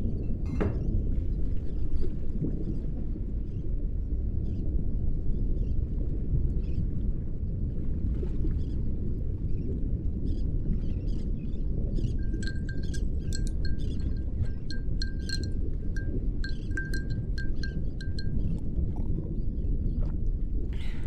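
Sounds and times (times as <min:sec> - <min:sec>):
ship low rumble: 0:11.5 - 0:21.0.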